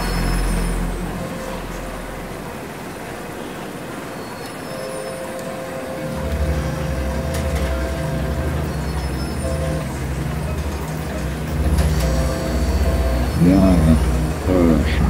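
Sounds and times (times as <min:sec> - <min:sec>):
noisy rumbling drone: 0:00.0 - 0:15.0
steady hum tone: 0:00.0 - 0:15.0
low throbbing rumble: 0:06.1 - 0:15.0.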